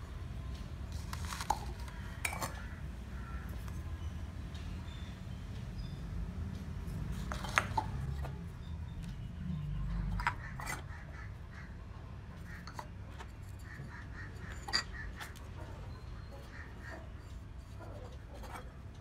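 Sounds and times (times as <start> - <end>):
clay pots clinking: 0.9 - 3.9, 6.6 - 10.9, 12.4 - 19.0.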